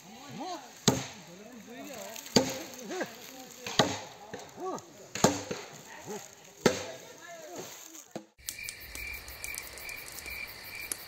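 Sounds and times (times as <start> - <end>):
axe chopping into log: 0.8 - 1.2, 2.2 - 2.8, 3.6 - 4.1, 5.1 - 5.7, 6.6 - 7.0.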